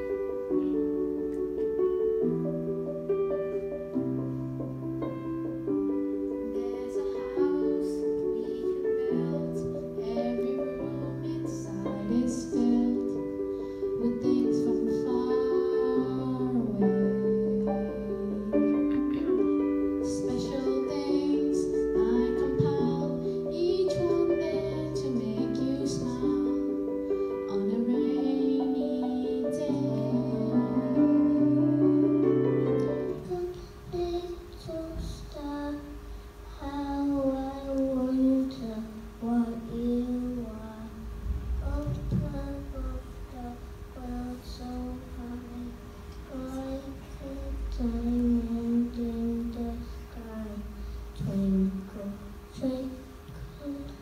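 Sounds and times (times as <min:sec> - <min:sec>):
instrumental backing music: 0:00.0 - 0:54.0
young child singing alone: 0:05.6 - 0:54.0
girl singing into a microphone: 0:05.8 - 0:54.0.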